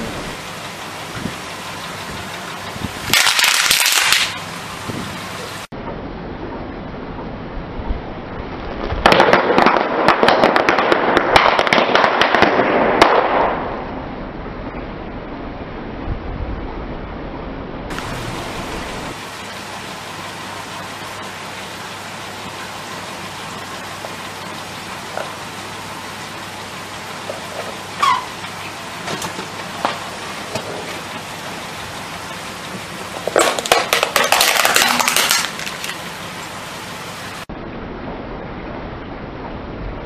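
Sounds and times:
steady low hiss: 0:00.0 - 0:40.0
tyre crushing crackling packets: 0:33.2 - 0:36.1.

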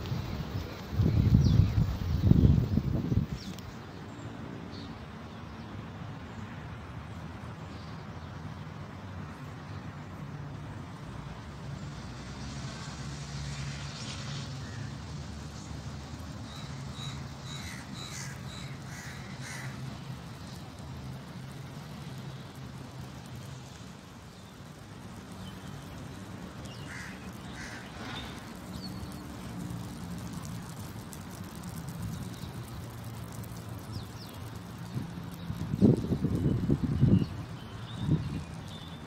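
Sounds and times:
crows cawing: 0:17.6 - 0:19.8, 0:26.9 - 0:27.9.

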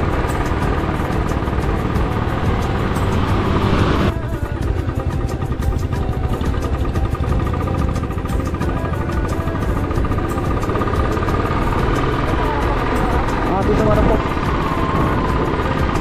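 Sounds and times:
rushing noise: 0:00.0 - 0:04.2
motorcycle engine running: 0:00.0 - 0:16.0.

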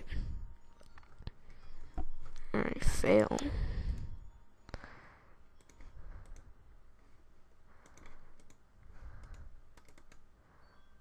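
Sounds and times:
mouse and keyboard clicking: 0:05.6 - 0:06.5, 0:07.8 - 0:08.6, 0:09.2 - 0:10.2.

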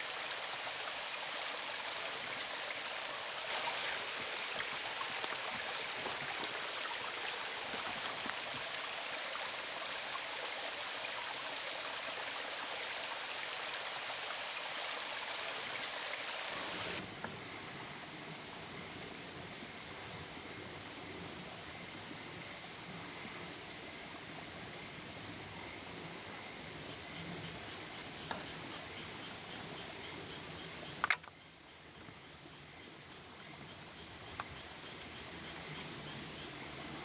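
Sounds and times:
stream rushing: 0:00.0 - 0:17.1
dull background hiss: 0:00.0 - 0:37.0.

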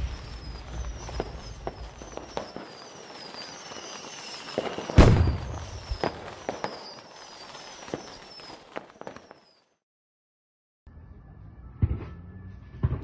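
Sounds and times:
loud firework bang: 0:00.0 - 0:06.9
crackling spark pops: 0:00.0 - 0:09.5
high falling whistles: 0:00.0 - 0:09.8.

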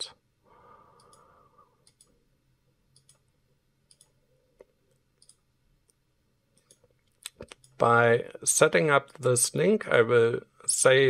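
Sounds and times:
faint computer mouse clicks: 0:01.0 - 0:02.2, 0:02.9 - 0:03.2, 0:03.9 - 0:06.0.

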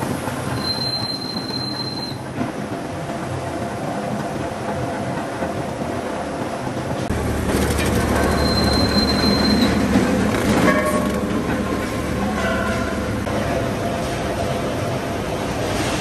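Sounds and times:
thin high squeal: 0:00.6 - 0:02.2, 0:08.3 - 0:09.8
rollers clattering and grinding: 0:07.1 - 0:13.0.

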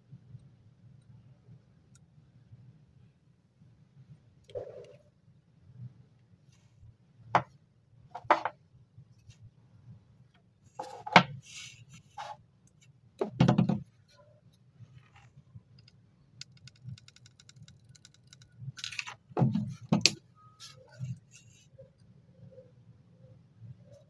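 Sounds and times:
small parts knocking and clattering: 0:15.8 - 0:20.2.

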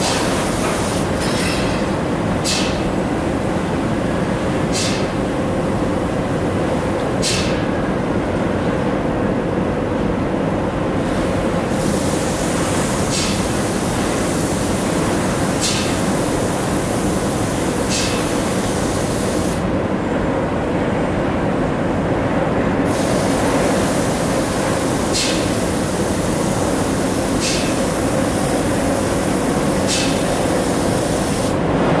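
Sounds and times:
paint spray gun hissing: 0:17.9 - 0:19.6, 0:22.9 - 0:31.6.

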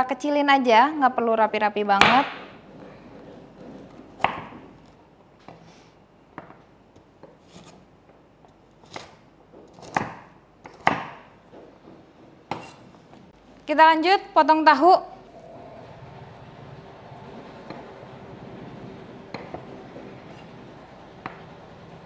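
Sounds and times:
knife chopping on wooden board: 0:08.9 - 0:11.3.

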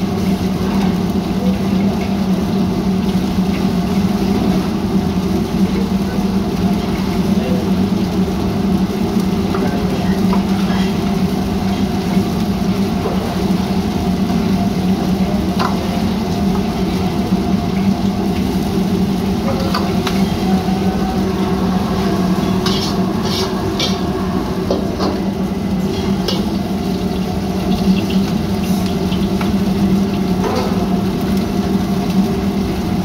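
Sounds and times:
food sizzling in a wok: 0:00.0 - 0:33.0
gas burner drone: 0:00.0 - 0:33.0
metal ladle scraping wok: 0:21.4 - 0:25.2.

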